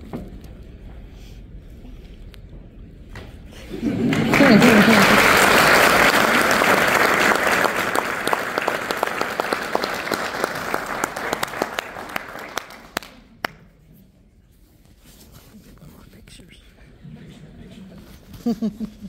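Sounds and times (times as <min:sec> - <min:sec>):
audience applauding: 0:03.7 - 0:13.3.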